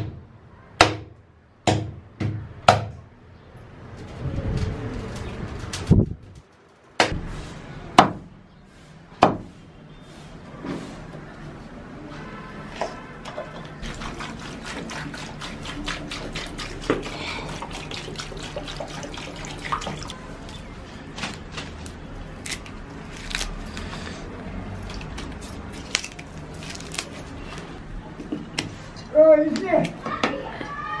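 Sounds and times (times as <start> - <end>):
wet food squelching in steel bowls: 8.5 - 27.8.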